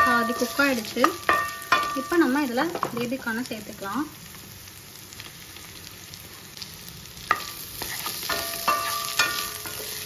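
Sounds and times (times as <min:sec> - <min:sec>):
spatula knocking on ringing steel pan: 0:00.0 - 0:02.2, 0:08.3 - 0:09.9
food frying in oil: 0:00.0 - 0:10.0.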